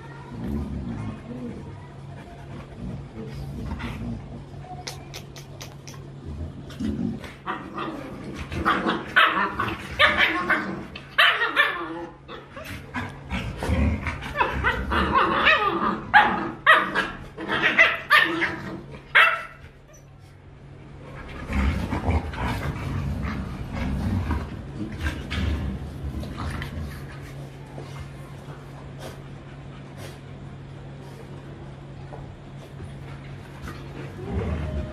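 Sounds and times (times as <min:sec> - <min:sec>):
dogs barking and yipping: 0:08.6 - 0:12.6.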